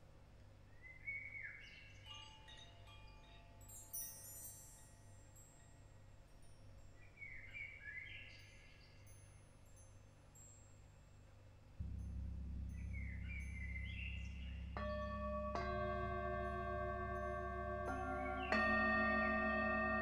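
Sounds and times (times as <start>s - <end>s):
metal chimes ringing: 2.0s - 7.0s, 11.8s - 20.0s
low steady hum: 9.6s - 20.0s.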